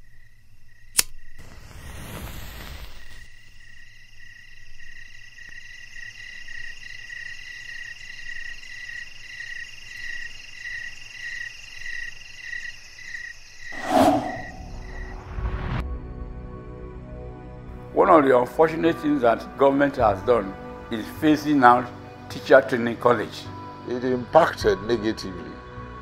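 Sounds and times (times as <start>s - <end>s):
insect trill: 2.9s - 15.1s
rushing whoosh: 13.8s - 15.5s.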